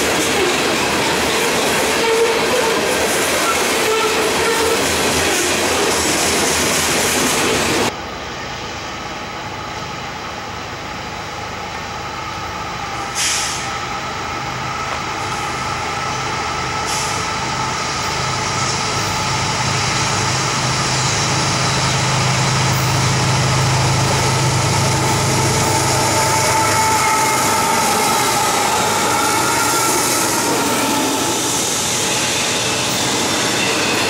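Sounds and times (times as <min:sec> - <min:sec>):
diesel locomotive engines humming: 0:00.0 - 0:34.0
short hisses: 0:13.1 - 0:13.7.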